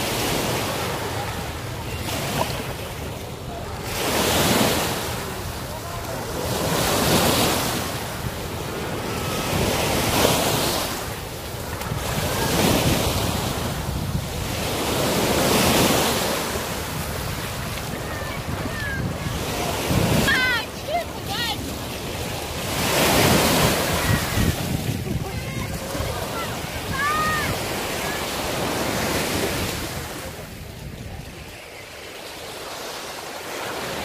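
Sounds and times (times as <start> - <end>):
waves washing on beach: 0.0 - 34.0
wind on microphone: 3.5 - 31.8.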